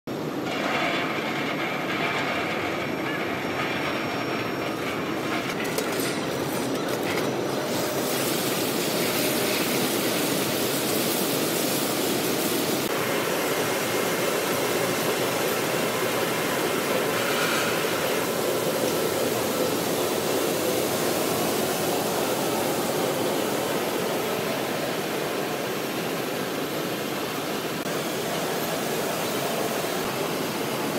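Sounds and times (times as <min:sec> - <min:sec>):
rushing water sprays: 0:07.6 - 0:30.9.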